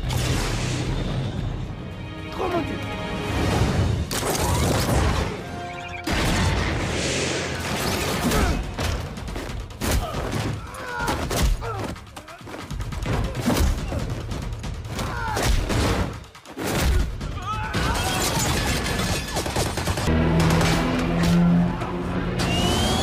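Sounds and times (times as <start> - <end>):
action film music: 0.0 - 23.0
gunshots: 15.4 - 21.4.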